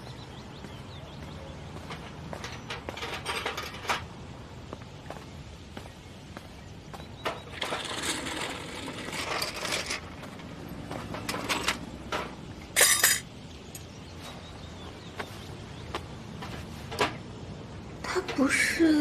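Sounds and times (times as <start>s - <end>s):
metal hand tools clinking and scraping: 1.9s - 4.1s, 7.5s - 13.3s.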